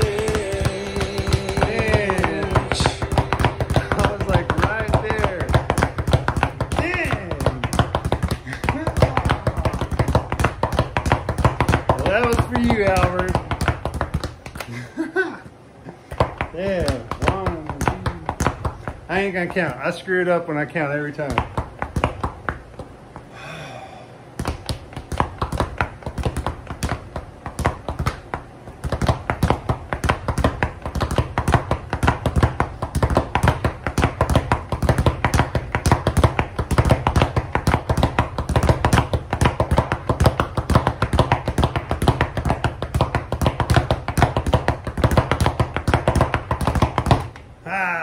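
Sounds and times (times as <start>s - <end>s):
speed bag rattling taps: 0.0s - 14.7s, 16.2s - 20.4s, 21.0s - 23.3s, 24.4s - 47.5s.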